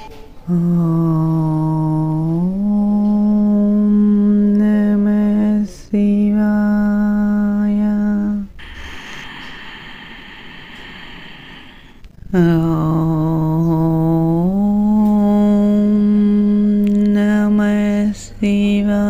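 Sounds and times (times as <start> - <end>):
person chanting long notes: 0.4 - 5.4, 12.3 - 18.0
steady hiss: 8.6 - 12.1.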